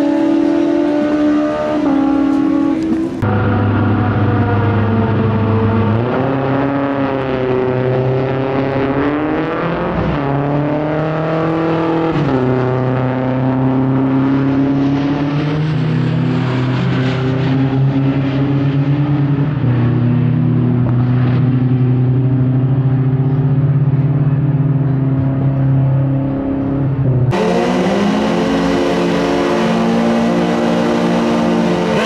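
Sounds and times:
motorcycle engine shifting gears: 0:00.0 - 0:06.8.

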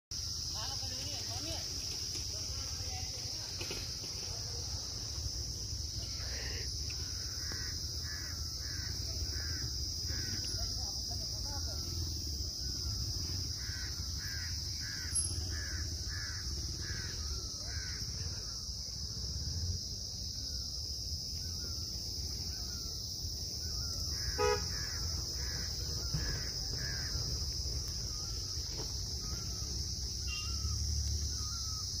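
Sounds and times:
insects droning: 0:00.1 - 0:32.0
birds giving slurred calls: 0:11.9 - 0:18.7, 0:23.6 - 0:32.0
horn-like toot: 0:24.3 - 0:24.7.

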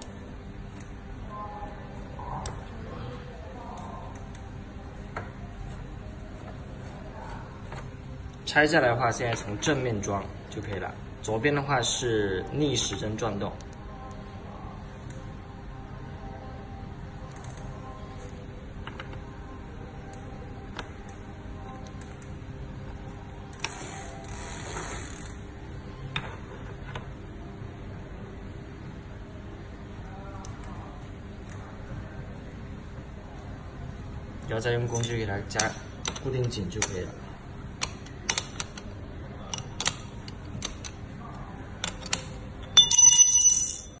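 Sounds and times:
wrench clicking on metal: 0:37.8 - 0:38.8, 0:39.5 - 0:41.0.

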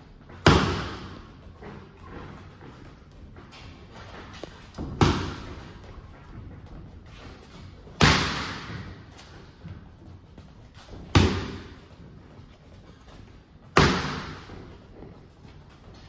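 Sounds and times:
boxing gloves smacking mitts: 0:00.3 - 0:02.0, 0:03.4 - 0:12.5, 0:13.2 - 0:15.1.

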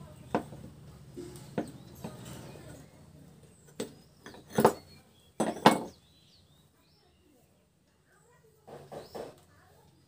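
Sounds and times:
hand tools knocking on metal: 0:03.8 - 0:06.0.

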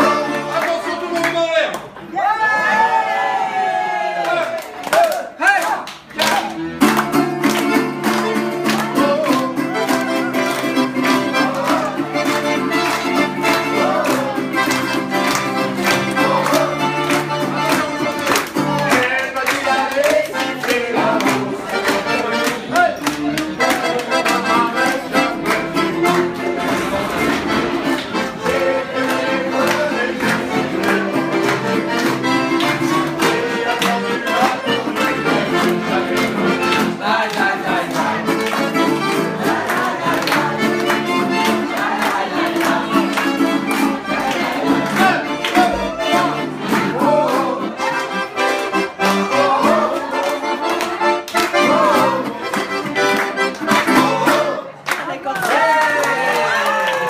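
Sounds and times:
plucked string instrument: 0:00.0 - 0:01.2, 0:06.2 - 0:54.6
accordion playing lively tune: 0:00.0 - 0:01.7, 0:06.1 - 0:55.3
people clapping along: 0:00.0 - 0:02.1, 0:04.2 - 0:57.0.

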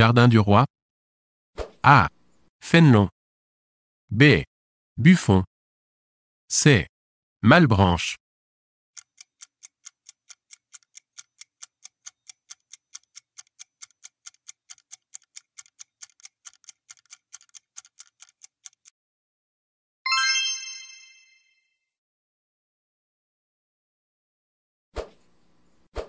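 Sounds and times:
bright chime: 0:20.1 - 0:21.7.

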